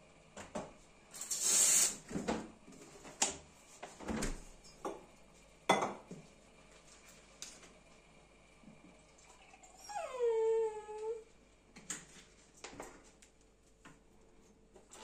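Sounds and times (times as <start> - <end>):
brief hiss: 1.2 - 2.0
crockery clinking and knocking: 5.7 - 6.1.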